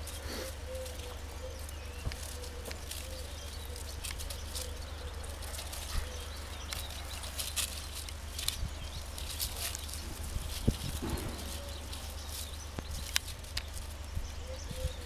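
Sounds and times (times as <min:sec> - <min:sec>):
low steady rumble: 0:00.0 - 0:15.0
paws digging in gravel: 0:00.0 - 0:15.0.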